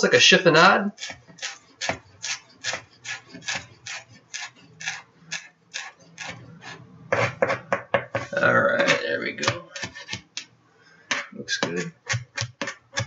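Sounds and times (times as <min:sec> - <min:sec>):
knife chopping on cutting board: 0:01.0 - 0:06.4, 0:11.1 - 0:13.0.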